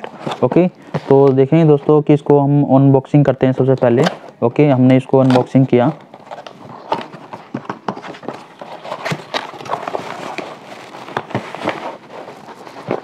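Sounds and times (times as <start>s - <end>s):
cardboard box being handled: 6.1s - 13.0s.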